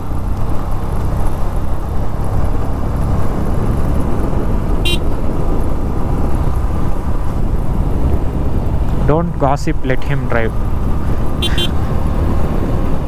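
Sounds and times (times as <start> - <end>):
motorcycle engine: 0.0 - 9.3, 9.9 - 13.0
wind rumble: 0.0 - 13.0
short horn beep: 11.4 - 11.8.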